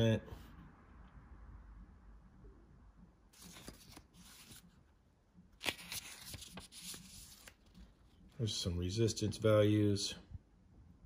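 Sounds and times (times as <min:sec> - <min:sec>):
paper pages turning: 0:03.3 - 0:04.9, 0:05.5 - 0:08.2
paper crinkle: 0:03.4 - 0:04.8, 0:05.6 - 0:08.0.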